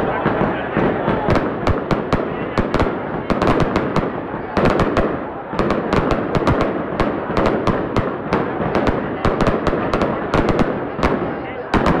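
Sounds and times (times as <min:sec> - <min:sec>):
fireworks banging: 0:00.0 - 0:12.0.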